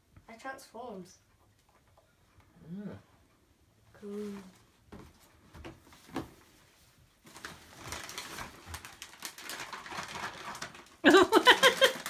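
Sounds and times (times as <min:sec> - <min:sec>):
foil wrapping paper crinkling: 0:07.2 - 0:12.0.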